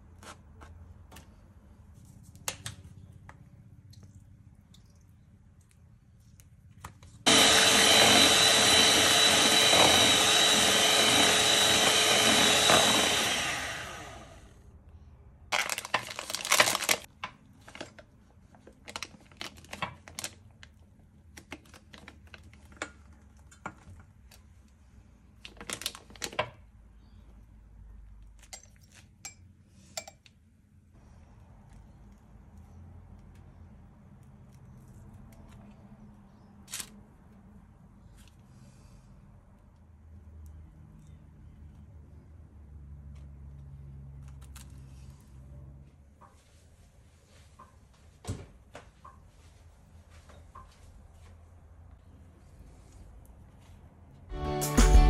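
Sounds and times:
electric hand mixer whipping: 0:07.3 - 0:14.5.

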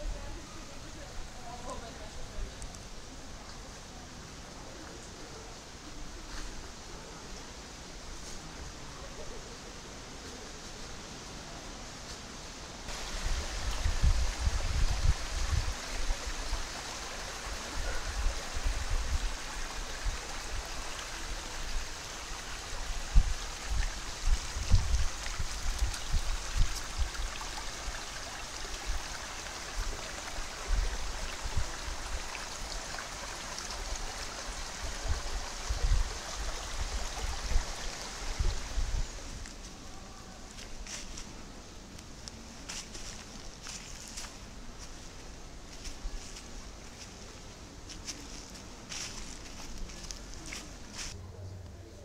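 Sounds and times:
running water: 0:12.8 - 0:41.3
wind buffeting microphone: 0:12.9 - 0:16.7, 0:22.8 - 0:27.3.

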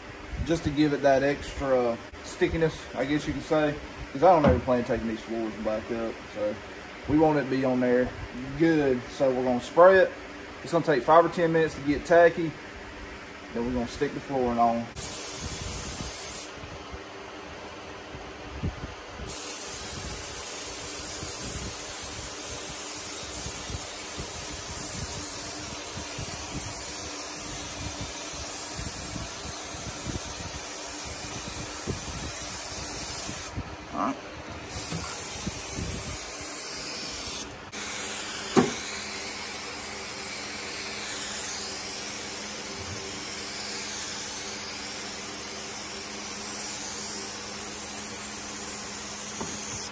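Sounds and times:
aerosol can spraying: 0:15.0 - 0:16.6, 0:19.3 - 0:33.5, 0:34.7 - 0:49.9
sharp knock: 0:38.5 - 0:38.8.

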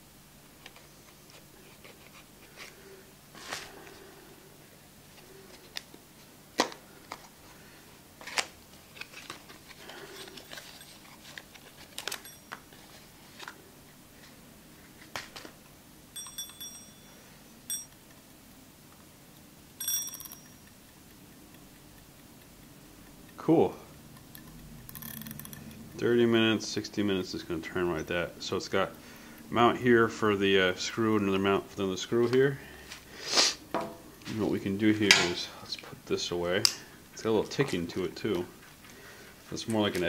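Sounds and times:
paper and plastic packaging rustling: 0:08.2 - 0:13.6
high metallic dings: 0:12.2 - 0:12.6, 0:16.2 - 0:18.0, 0:19.8 - 0:20.8.

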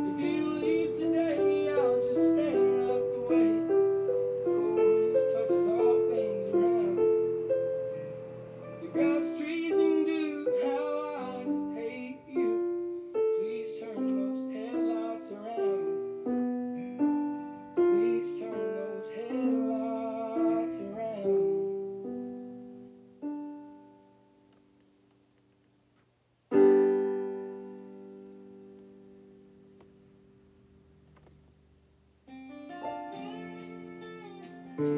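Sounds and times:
faint recorded song with singing: 0:00.0 - 0:07.5, 0:08.7 - 0:16.0, 0:17.8 - 0:21.7
slow piano melody: 0:00.0 - 0:24.8, 0:26.5 - 0:31.6, 0:32.3 - 0:34.9.

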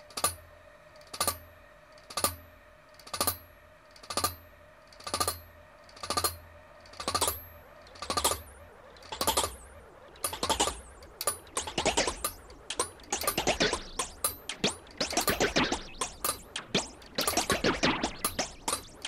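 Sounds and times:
pendulum clock ticking: 0:07.0 - 0:19.0.

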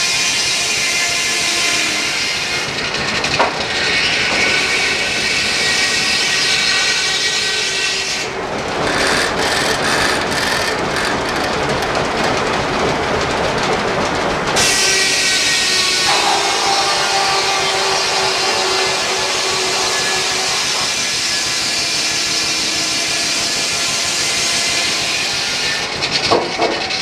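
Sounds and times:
circular saw whining through log: 0:00.0 - 0:11.6, 0:14.6 - 0:27.0
log carriage clicking clatter: 0:08.6 - 0:14.8.

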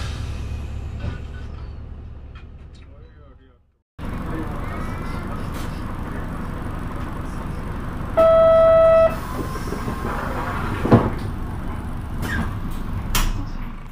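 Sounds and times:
bus running: 0:00.0 - 0:03.2, 0:04.0 - 0:13.9
buzzer tone: 0:08.2 - 0:09.2.

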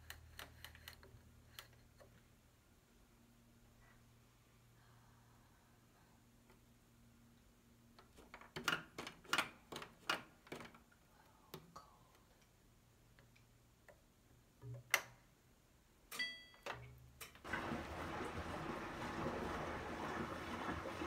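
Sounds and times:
water running into drum: 0:17.4 - 0:21.0.

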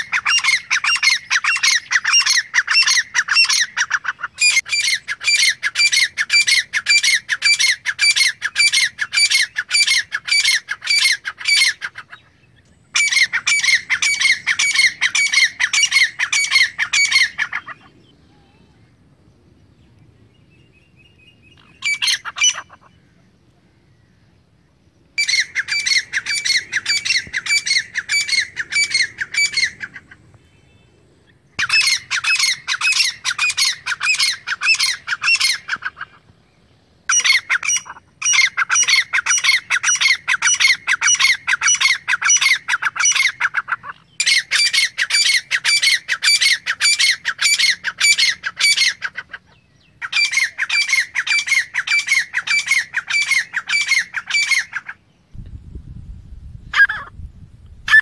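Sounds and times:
bird calling with squeaky notes: 0:00.0 - 0:18.7, 0:21.2 - 0:23.0, 0:25.2 - 0:30.1, 0:31.6 - 0:36.2, 0:37.1 - 0:55.0, 0:56.7 - 0:57.1.

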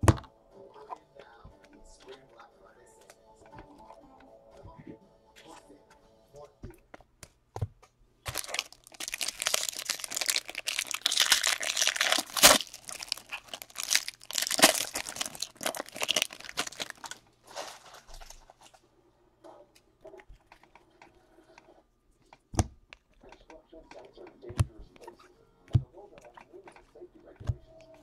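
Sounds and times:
foil wrapper crinkling: 0:08.3 - 0:18.7.

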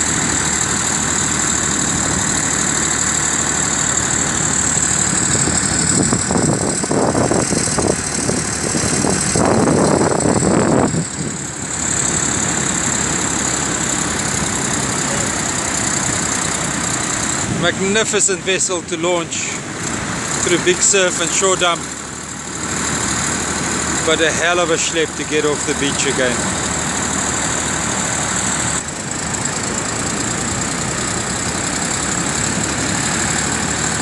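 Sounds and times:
tractor engine under load: 0:00.0 - 0:34.0
wind noise: 0:05.1 - 0:11.5.

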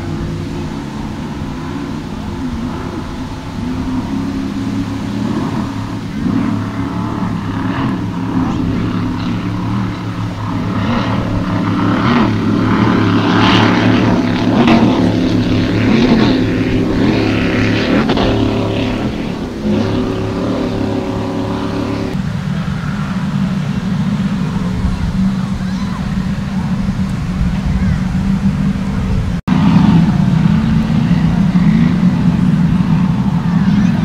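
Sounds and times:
distant boats droning: 0:00.0 - 0:34.0
powerboat engines at high speed: 0:00.0 - 0:34.0.

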